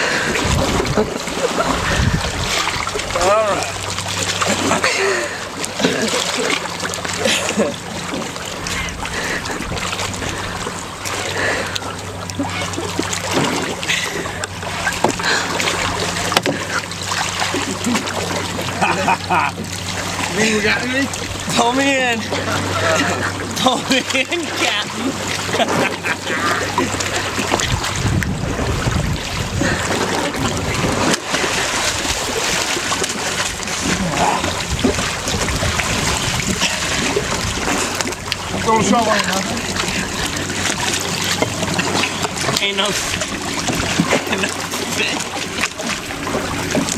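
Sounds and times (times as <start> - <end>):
seawater splashing: 0.0 - 46.9
steady low hum: 0.0 - 46.9
water lapping around canoe: 0.0 - 46.9
knocks on canoe: 15.0 - 15.2, 16.3 - 16.7.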